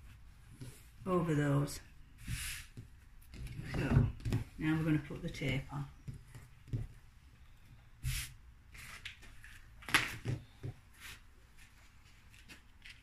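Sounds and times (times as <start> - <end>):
light knocks and thumps: 5.4 - 7.0.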